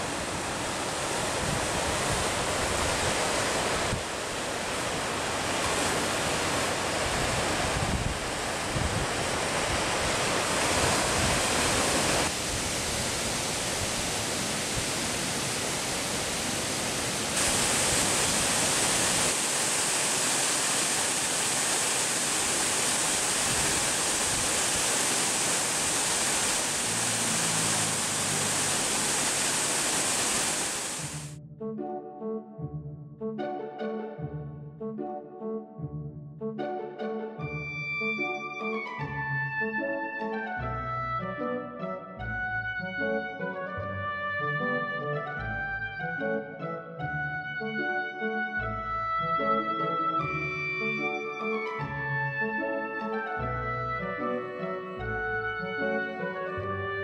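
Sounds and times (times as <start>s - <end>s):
surf breaking on rocky shore: 0.0s - 31.4s
wind on microphone: 0.4s - 20.0s, 22.1s - 31.3s.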